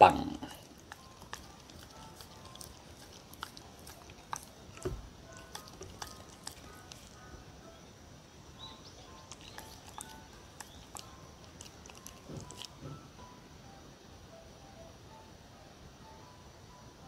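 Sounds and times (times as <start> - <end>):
soft background music: 0.0 - 17.0
dog licking and nibbling: 0.1 - 7.3, 9.1 - 13.0.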